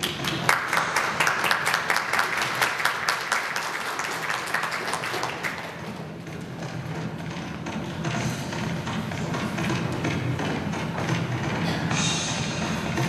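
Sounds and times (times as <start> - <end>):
audience applauding: 0.0 - 6.1.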